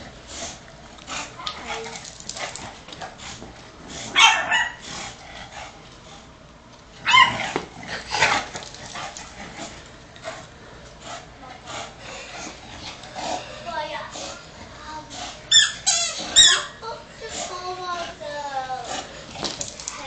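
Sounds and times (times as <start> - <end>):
small dog yipping: 4.2 - 4.8, 7.0 - 7.6, 15.5 - 16.8.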